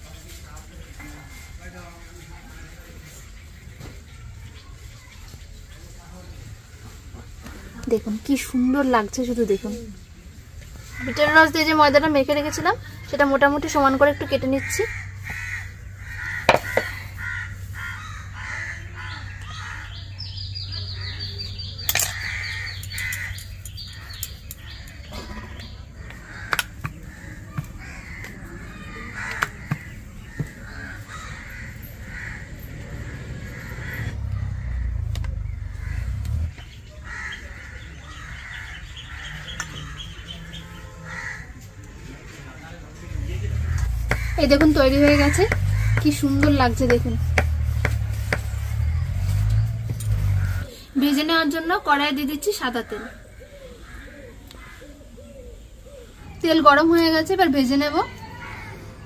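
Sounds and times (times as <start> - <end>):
crows cawing: 10.9 - 20.2, 21.9 - 41.8, 43.3 - 48.0, 52.5 - 56.2, 57.8 - 59.0
knife tapping on stone board: 16.5 - 16.9.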